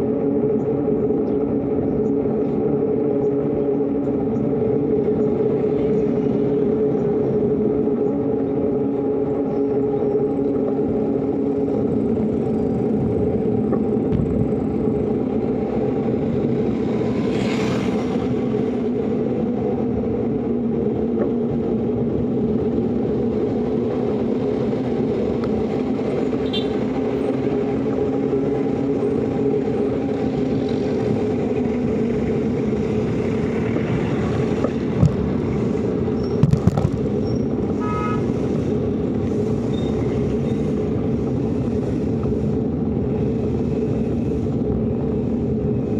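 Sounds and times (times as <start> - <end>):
road and wind noise: 0.0 - 45.9.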